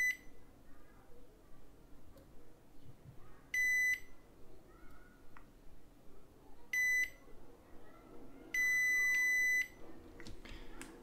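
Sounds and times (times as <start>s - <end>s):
multimeter high beeps: 3.6s - 4.2s, 6.8s - 7.2s, 8.6s - 9.8s.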